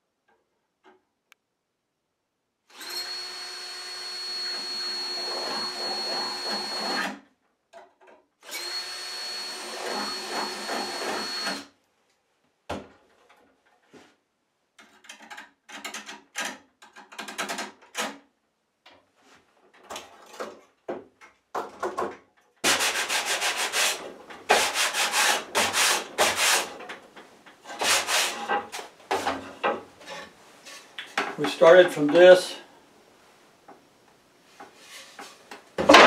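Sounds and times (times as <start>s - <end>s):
sandpaper rubbing on wood: 22.6s - 26.7s, 27.8s - 28.5s.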